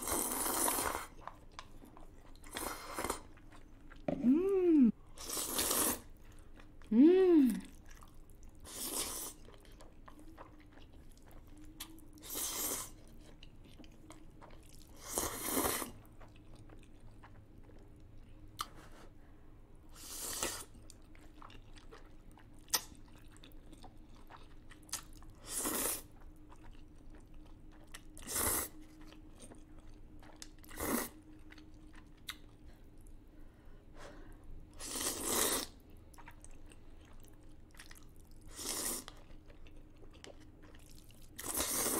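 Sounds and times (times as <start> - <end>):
loud noodle slurps: 0.0 - 1.1, 5.2 - 6.1, 25.4 - 26.1, 34.8 - 35.8, 41.4 - 41.9
wet chewing clicks: 20.9 - 25.4.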